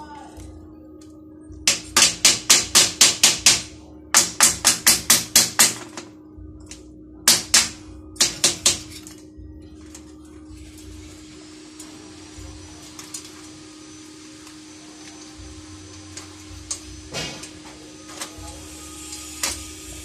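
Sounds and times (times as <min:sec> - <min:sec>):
slag hammer striking metal: 0:01.7 - 0:06.0, 0:07.3 - 0:09.0.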